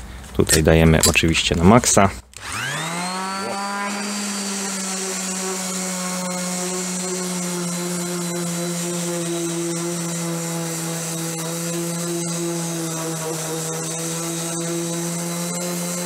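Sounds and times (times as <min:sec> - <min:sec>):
orbital sander sanding wood: 0:02.4 - 0:16.0.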